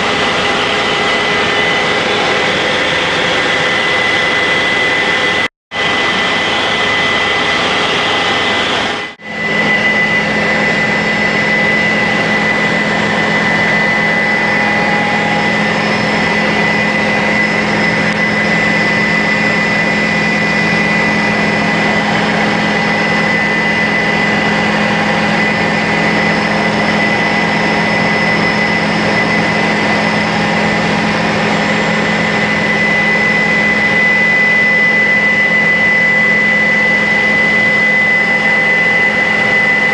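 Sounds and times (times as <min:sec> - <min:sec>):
helicopter engine and rotor drone: 0:00.0 - 0:39.9
high-pitched whine: 0:00.0 - 0:39.9
low hum: 0:09.0 - 0:39.9.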